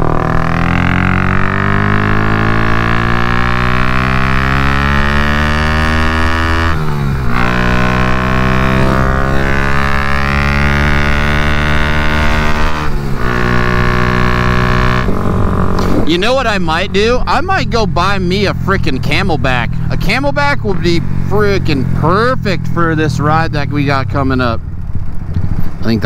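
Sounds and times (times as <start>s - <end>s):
motorcycle engine running hard: 0.0s - 26.0s
wind rushing over microphone: 6.1s - 17.3s.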